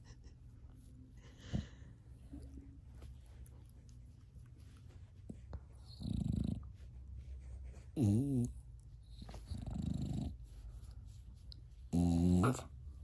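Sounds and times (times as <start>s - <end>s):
dog groaning: 11.9s - 12.7s
dog grumbling: 11.9s - 12.7s.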